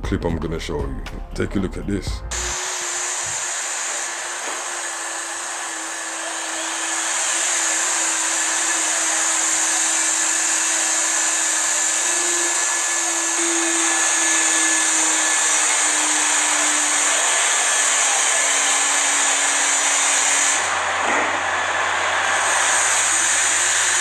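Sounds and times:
robot machine whir and hiss: 2.3 - 17.0.

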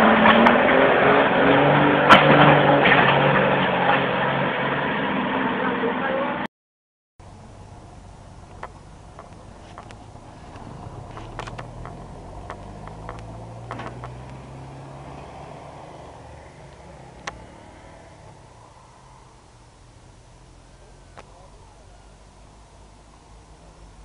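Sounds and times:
faint low engine hum: 7.2 - 24.0.

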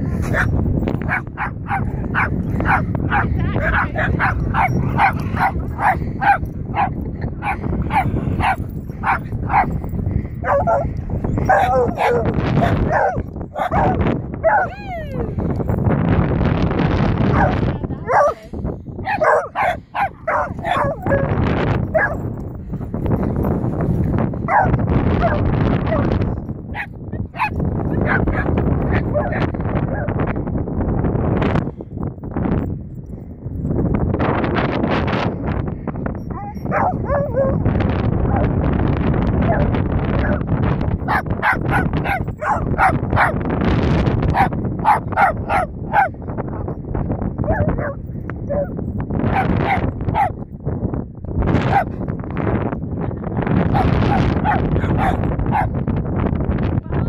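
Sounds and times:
dog barking: 0.2 - 9.8, 10.4 - 14.8, 17.3 - 18.4, 19.0 - 22.3, 24.5 - 30.1, 36.3 - 37.6, 41.0 - 43.4, 44.3 - 46.2, 47.4 - 48.7, 49.3 - 50.4, 51.7 - 51.9, 53.7 - 55.8.

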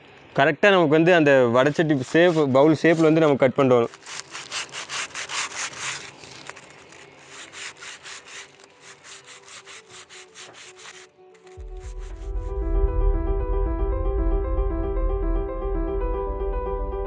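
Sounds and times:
blade cutting through foil: 1.4 - 12.4
background music: 2.2 - 17.0.

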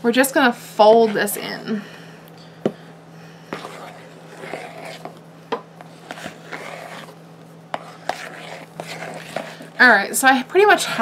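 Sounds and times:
spatula swishing thick mixture: 0.8 - 1.7, 3.4 - 11.0.

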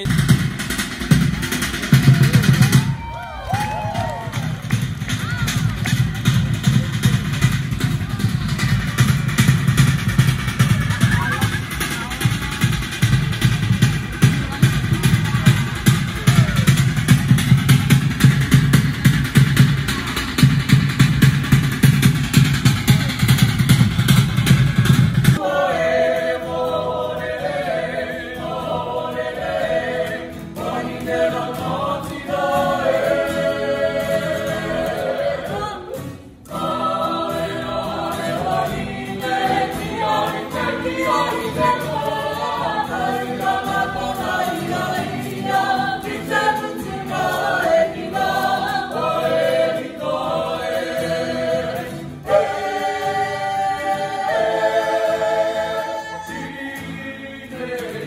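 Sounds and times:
acoustic guitar: 0.0 - 58.0
group singing in harmony: 25.2 - 58.0.

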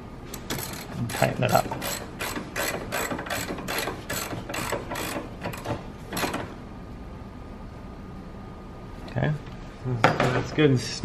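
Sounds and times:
ratchet wrench clicking: 0.4 - 6.4.

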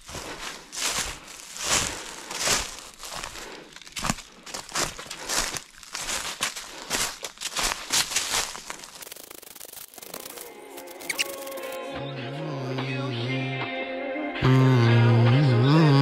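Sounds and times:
footsteps on dry leaves: 0.0 - 11.8.

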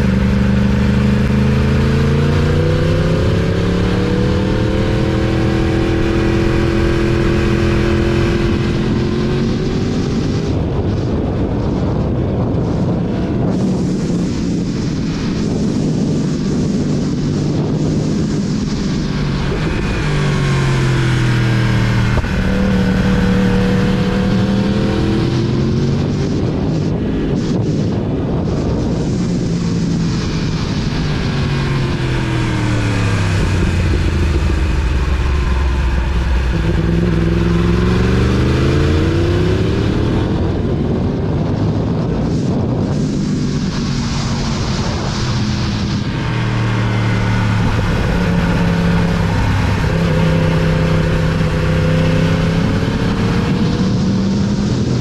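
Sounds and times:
motorcycle engine running: 0.0 - 55.0
wind rush: 0.0 - 55.0.

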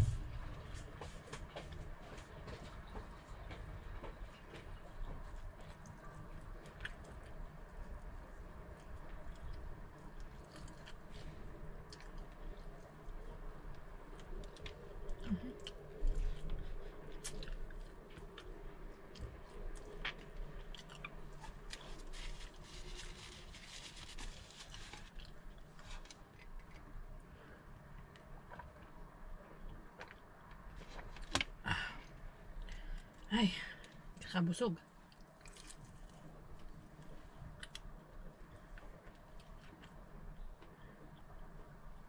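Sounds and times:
person chewing food: 8.8 - 27.1, 35.1 - 41.3.

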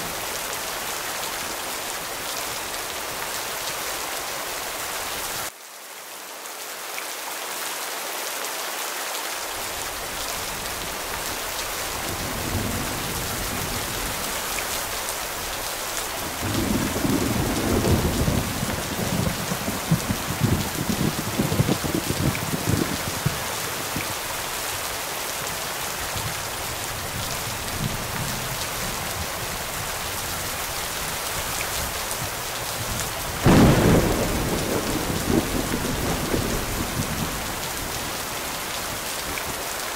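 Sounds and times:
steady rain: 0.0 - 39.9
thunder rumbling: 10.9 - 24.3, 31.8 - 38.7
loud thunderclap: 16.3 - 23.5, 33.4 - 37.7.

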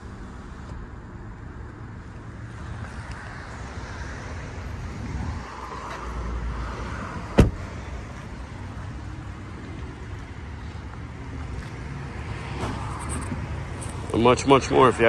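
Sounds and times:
sharp knock: 7.4 - 7.6.

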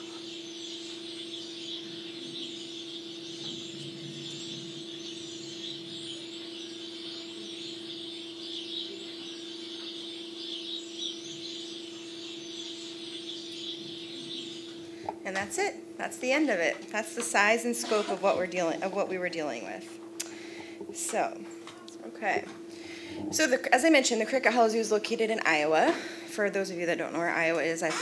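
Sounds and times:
birds chirping: 0.0 - 19.3, 20.2 - 24.9
steady low hum: 0.0 - 28.0.

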